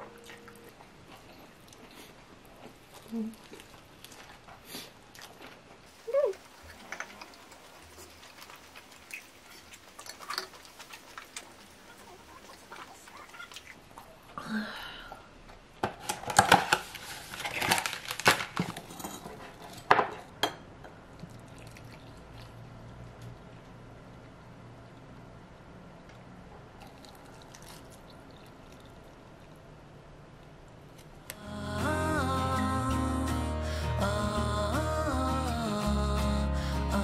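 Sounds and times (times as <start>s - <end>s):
soft chewing: 0.0s - 14.4s, 21.1s - 23.7s, 26.1s - 31.4s.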